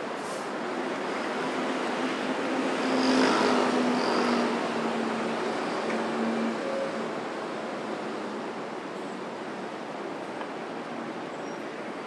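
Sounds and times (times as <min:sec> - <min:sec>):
cars passing: 0:00.0 - 0:09.0.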